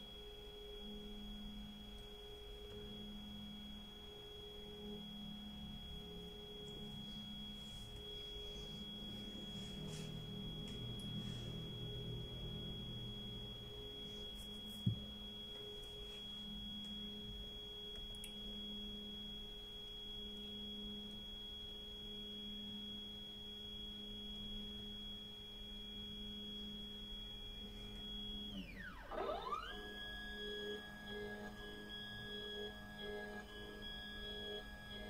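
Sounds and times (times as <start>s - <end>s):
stepper motors whining: 28.5s - 31.6s.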